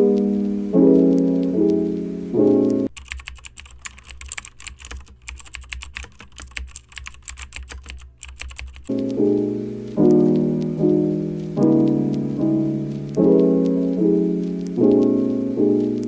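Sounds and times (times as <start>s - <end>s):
piano music: 0.0s - 3.8s, 7.8s - 16.0s
keyboard typing: 0.0s - 16.0s.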